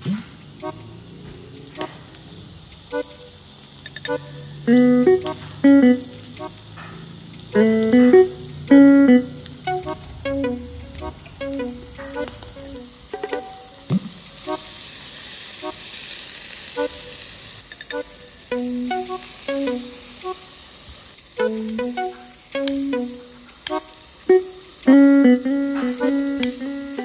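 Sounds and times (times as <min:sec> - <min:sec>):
pork sizzling on a grill: 0:00.0 - 0:10.0, 0:10.6 - 0:27.0
plucked guitar music: 0:04.1 - 0:06.6, 0:07.5 - 0:14.0, 0:17.9 - 0:20.4, 0:21.4 - 0:27.0.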